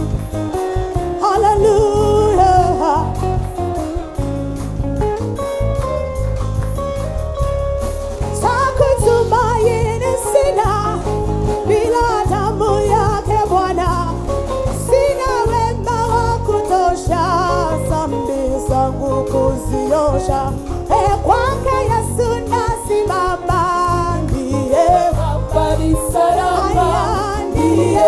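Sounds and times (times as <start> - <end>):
band with drum kit playing: 0.0 - 28.0.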